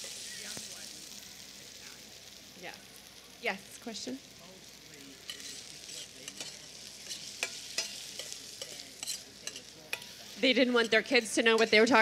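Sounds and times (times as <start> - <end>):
vegetables sizzling in oil: 0.0 - 12.0
metal spoon clinking against pan: 5.2 - 12.0.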